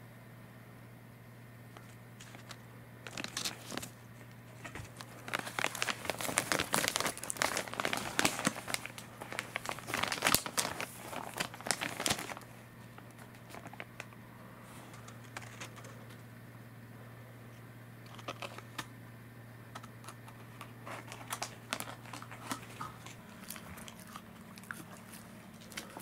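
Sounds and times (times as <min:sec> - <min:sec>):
plastic package crinkling: 0:01.8 - 0:14.2, 0:14.9 - 0:16.0, 0:18.1 - 0:18.9, 0:19.8 - 0:26.0.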